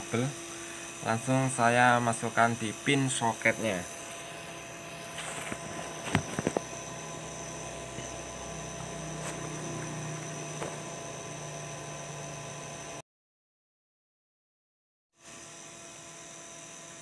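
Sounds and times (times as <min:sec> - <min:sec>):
steady background hum: 0:00.0 - 0:12.3.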